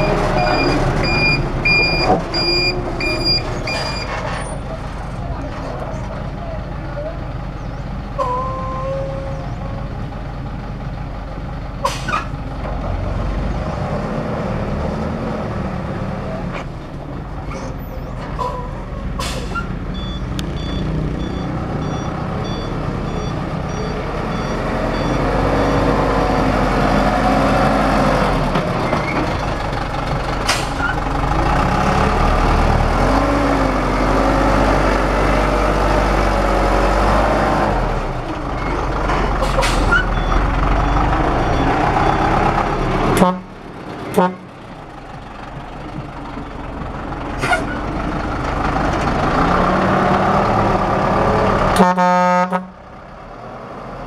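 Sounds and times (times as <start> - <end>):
diesel truck engine running: 0.0 - 54.0.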